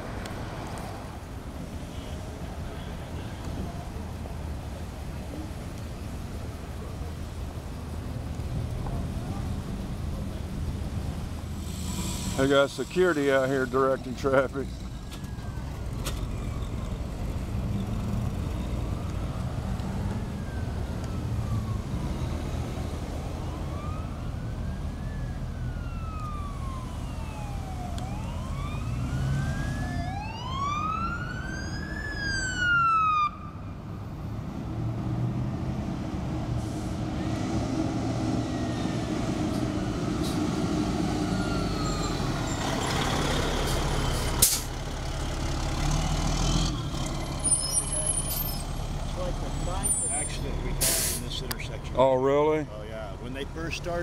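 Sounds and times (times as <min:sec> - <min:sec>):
truck engine rumbling: 0:00.0 - 0:54.0
fire engine siren wailing: 0:12.7 - 0:33.8, 0:36.5 - 0:51.2.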